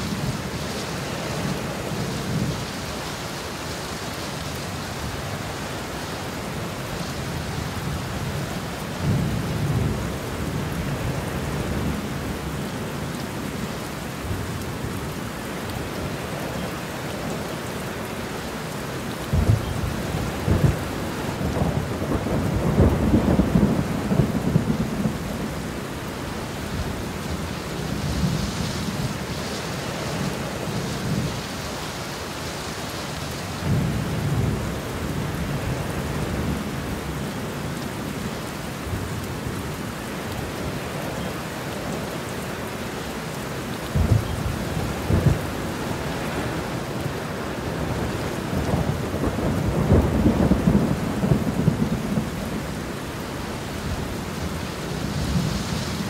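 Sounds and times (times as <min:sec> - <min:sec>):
heavy rain falling: 0:00.0 - 0:56.0
thunderclap and rumble: 0:19.2 - 0:25.6, 0:43.9 - 0:52.8.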